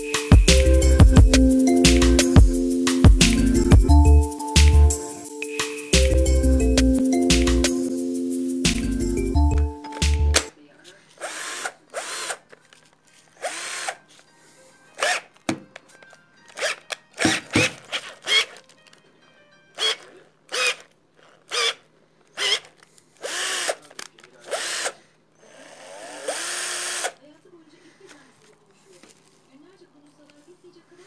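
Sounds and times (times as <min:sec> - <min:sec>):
cordless drill motor bursts: 0:11.2 - 0:12.4, 0:13.4 - 0:14.0, 0:16.6 - 0:18.6, 0:19.8 - 0:27.2.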